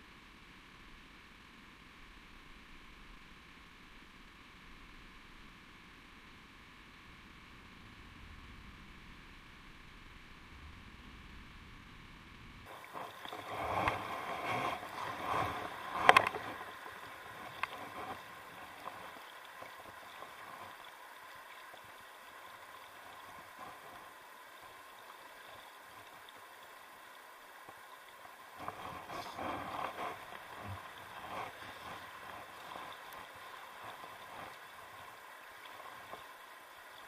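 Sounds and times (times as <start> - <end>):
faint rush of water: 12.6 - 37.0
water sloshing and splashing: 12.7 - 37.0.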